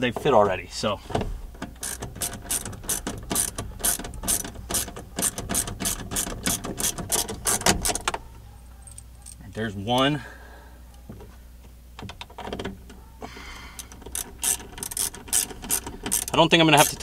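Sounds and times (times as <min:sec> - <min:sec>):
hand ratchet clicking: 0:01.8 - 0:08.2, 0:13.8 - 0:17.0.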